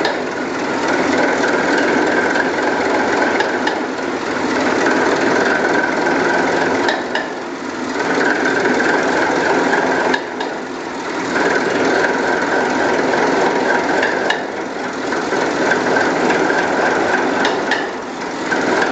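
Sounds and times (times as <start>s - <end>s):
diesel engine clattering: 0.0s - 18.9s
sharp engine clicks: 8.0s - 10.6s, 11.3s - 18.9s.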